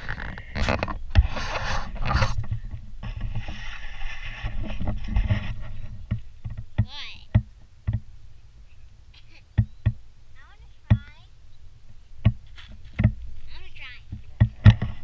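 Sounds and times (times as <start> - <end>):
camera handling rumble and rubbing: 0.0 - 6.8, 12.4 - 15.0
sharp knocks: 4.8 - 8.1, 10.8 - 11.2, 12.2 - 13.2, 14.1 - 15.0.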